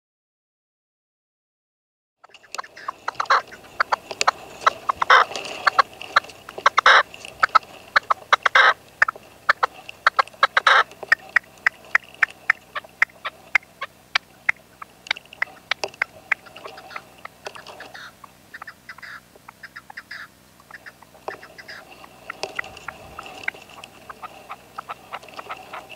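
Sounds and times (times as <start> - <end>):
partridge clucking: 2.2 - 25.9
partridge loud calls: 2.2 - 25.9.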